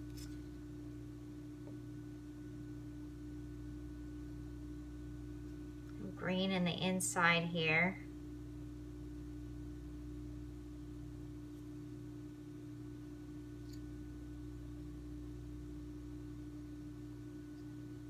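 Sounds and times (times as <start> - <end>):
steady tonal hum: 2.6 - 18.0.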